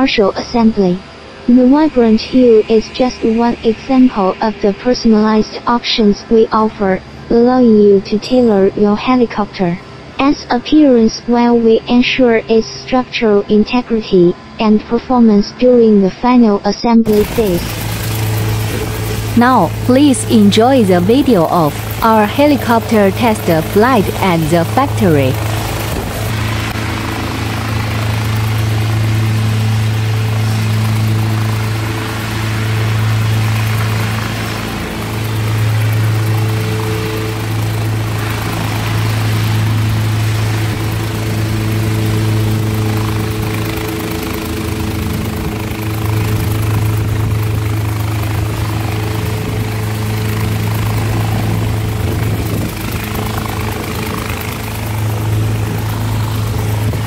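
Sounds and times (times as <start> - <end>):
helicopter engine idling: 17.0 - 57.0.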